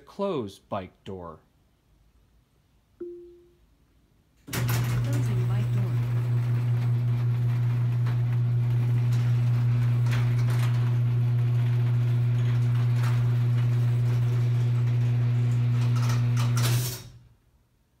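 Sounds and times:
garage door clicks and rattles: 4.4 - 17.2
garage door opener motor humming: 4.5 - 17.3.

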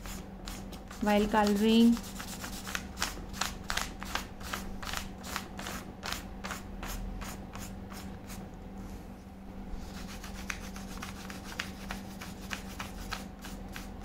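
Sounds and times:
crayon scratching on paper: 0.0 - 3.1, 9.9 - 13.9
steady low hum: 0.0 - 14.0.

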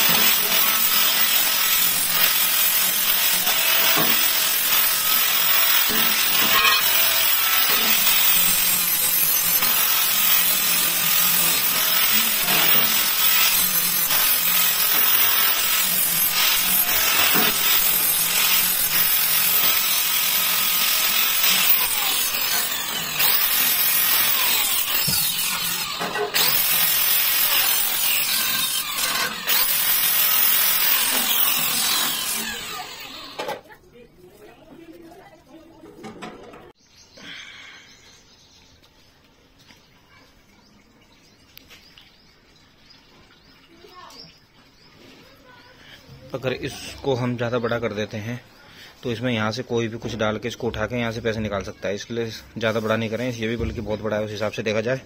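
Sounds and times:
angle grinder cutting steel: 0.0 - 33.6.

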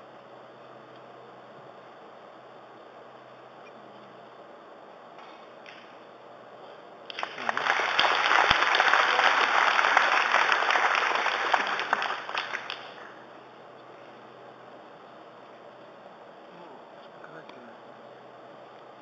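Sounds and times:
audience applauding: 7.1 - 13.2.

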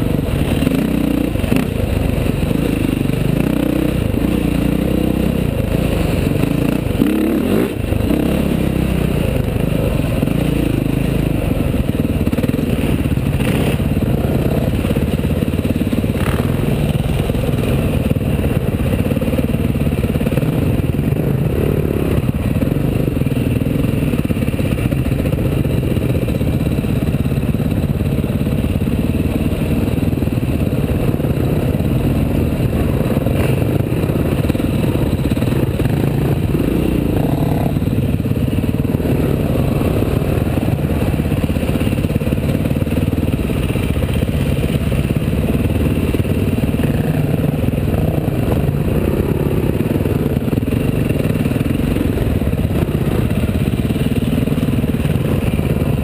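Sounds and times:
dirt bike engine revving: 2.5 - 9.2, 33.1 - 41.0.

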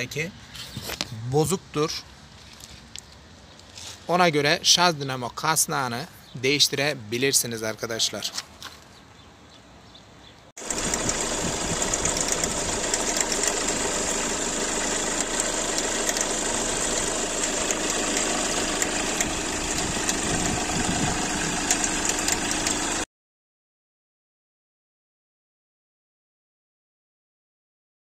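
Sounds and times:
diesel engine idling: 10.6 - 23.0
fast ticking from belt pulley: 10.6 - 23.0.

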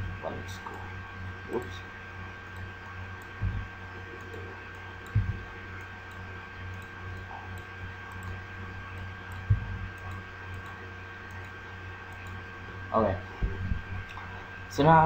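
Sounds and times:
electrical hum: 0.0 - 15.0
faint high whine: 0.0 - 15.0.

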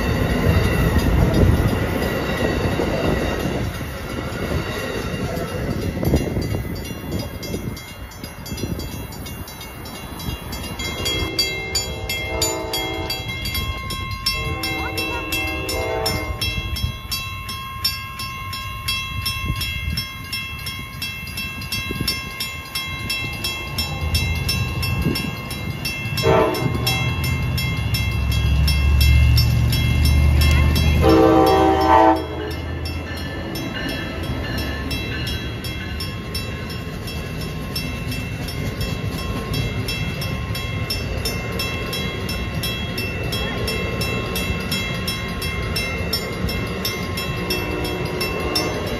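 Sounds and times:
crossing bell dinging: 0.0 - 48.9
low rumble of train: 0.0 - 48.9
rolling of passenger cars: 0.0 - 48.9
train horn blasts: 11.1 - 13.6, 14.2 - 16.7, 26.2 - 27.3, 31.0 - 32.7, 47.5 - 48.9.

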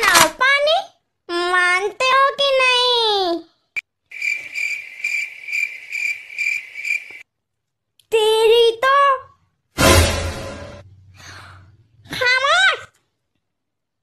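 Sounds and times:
crickets chirping: 3.8 - 7.2
high-pitched cartoon voice: 12.1 - 13.0.

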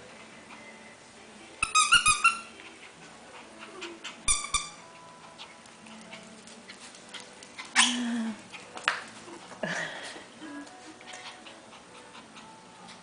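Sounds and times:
dog toy squeaking: 1.6 - 2.6, 4.2 - 4.9.

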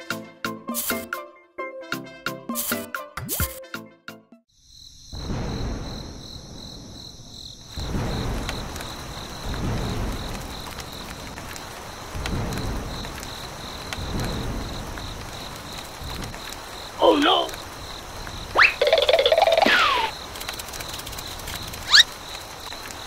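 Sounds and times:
crickets chirping: 4.5 - 23.0
low rolls of thunder: 5.0 - 20.4
steady rain: 5.1 - 23.0.

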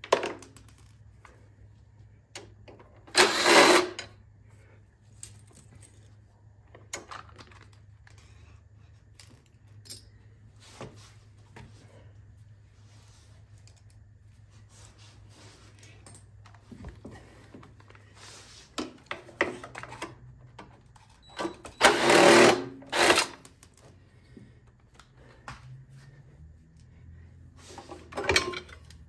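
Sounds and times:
power driver running: 3.1 - 4.0, 21.8 - 23.4
clicks and knocks of tools: 13.5 - 14.0, 18.7 - 24.0, 27.8 - 29.0.

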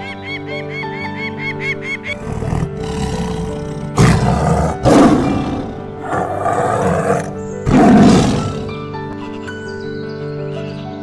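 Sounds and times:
background music: 0.0 - 11.0
tiger roaring and snarling: 2.1 - 8.8.

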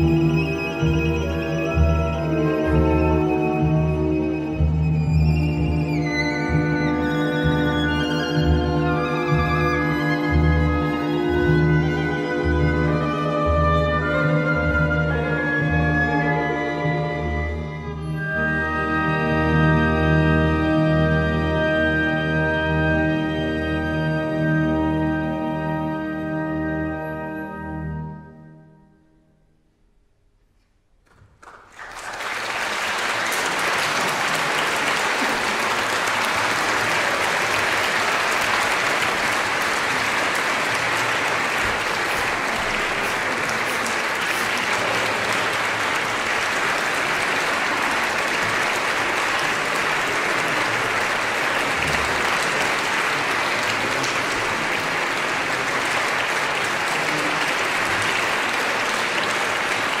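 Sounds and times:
audience applauding: 31.1 - 60.0.

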